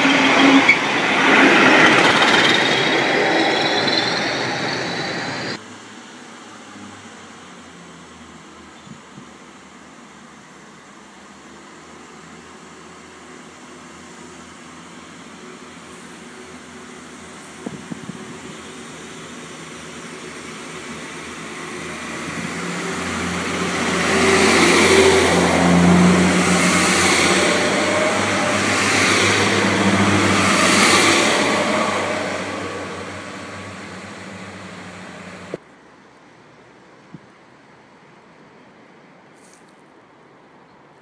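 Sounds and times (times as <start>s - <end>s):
diesel train engine humming: 0.0s - 5.6s, 10.3s - 35.6s
train wheel clatter: 0.0s - 5.6s.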